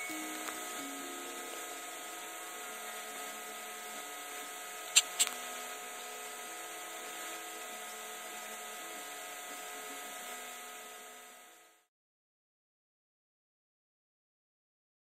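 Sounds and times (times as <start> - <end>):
steady hum and hiss: 0.0 - 11.9
sharp clicks: 4.9 - 5.4.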